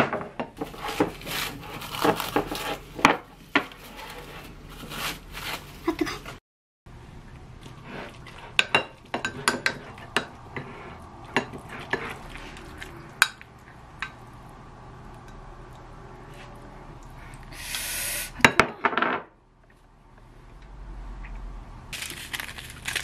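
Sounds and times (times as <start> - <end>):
hissing scrape: 17.5 - 18.4.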